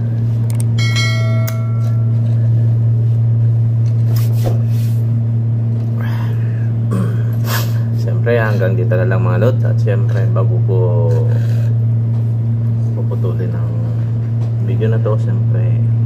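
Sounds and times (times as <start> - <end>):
steady low hum: 0.0 - 16.0
bell-like chime: 0.8 - 2.2.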